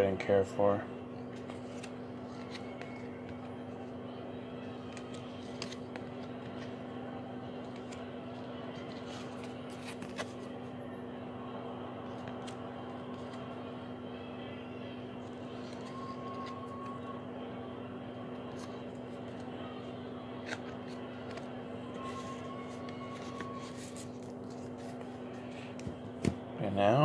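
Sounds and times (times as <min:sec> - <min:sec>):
trading cards sliding and clicking: 0:01.2 - 0:03.5, 0:04.7 - 0:06.9, 0:07.6 - 0:10.6, 0:12.1 - 0:13.6, 0:15.2 - 0:17.2, 0:18.4 - 0:26.4.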